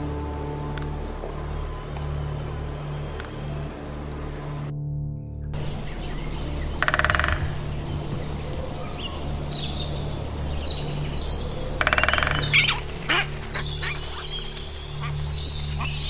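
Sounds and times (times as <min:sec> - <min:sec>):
birds chirping: 0:00.0 - 0:04.7, 0:05.6 - 0:16.0
woodpecker drumming: 0:06.7 - 0:16.0.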